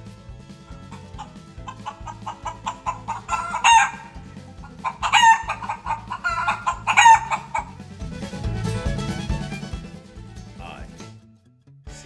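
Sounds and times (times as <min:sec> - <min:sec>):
chicken drawn-out calls: 0:00.0 - 0:10.3
chickens clucking: 0:00.6 - 0:10.0.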